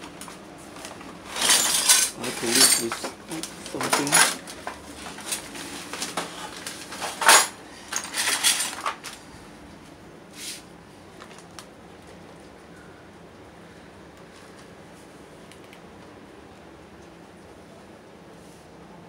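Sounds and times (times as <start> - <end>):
metal clinks and knocks: 1.3 - 5.4.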